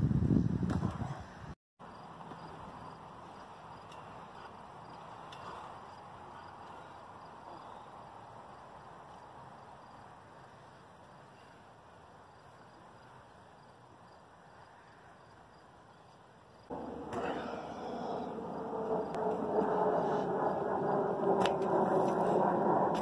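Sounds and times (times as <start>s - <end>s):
soft outdoor hiss: 1.8s - 16.8s.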